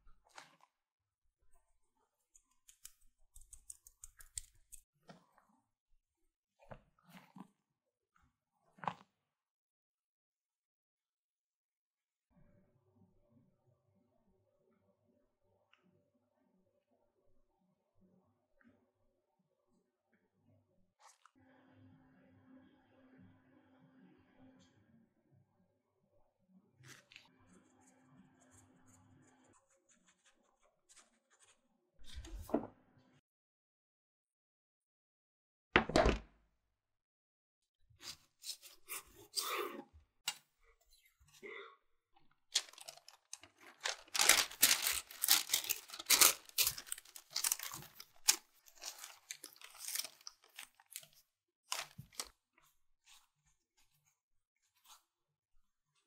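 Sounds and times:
biscuits crunching and crinkling: 42.6 - 52.4.

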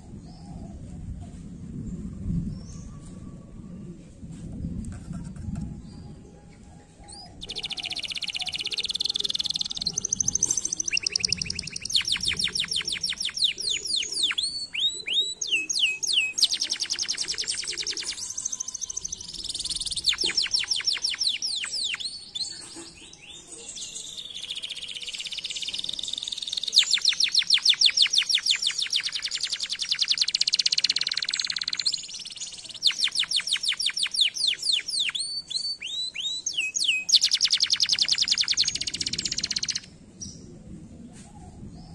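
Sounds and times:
canary singing: 7.1 - 39.9.

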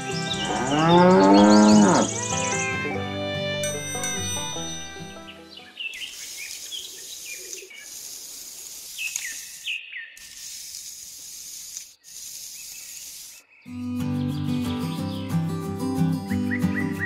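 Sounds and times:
falling bird chirps: 0.0 - 2.8, 5.2 - 10.8, 11.8 - 15.4
stick scratching through sand: 6.0 - 13.5.

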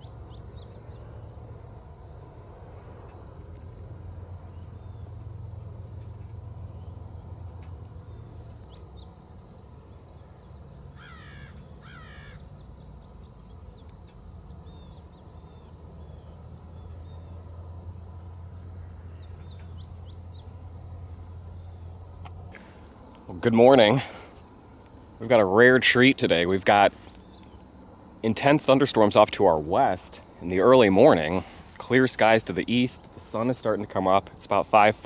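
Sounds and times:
low steady rumble: 0.0 - 11.0, 12.4 - 35.0
insects droning: 0.0 - 35.0
bird harsh calls: 11.0 - 12.4.

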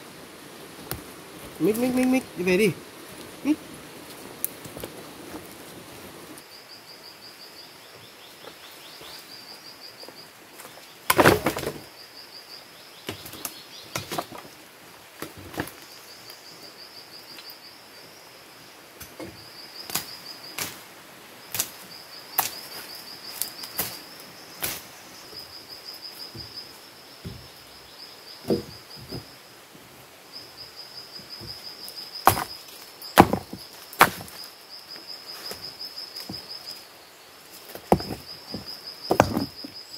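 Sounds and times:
insects chirping in trills: 0.0 - 39.9
sharp knocks: 28.4 - 29.3, 32.2 - 32.5, 33.2 - 34.4, 37.9 - 39.7
heavy thump: 28.5 - 29.3, 33.2 - 34.3, 37.9 - 39.6.

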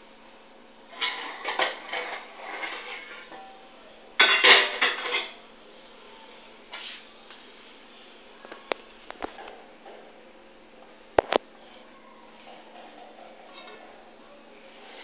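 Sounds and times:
metal cookware clattering: 0.9 - 3.6, 4.2 - 5.4.

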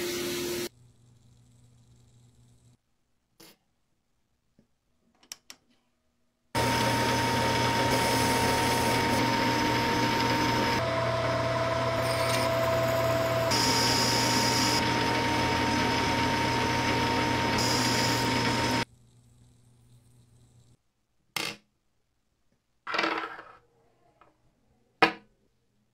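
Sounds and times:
power tool whining: 6.6 - 18.8.

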